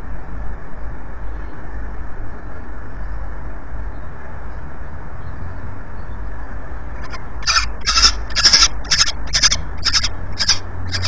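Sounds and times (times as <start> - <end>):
falcon calling: 7.0 - 11.0.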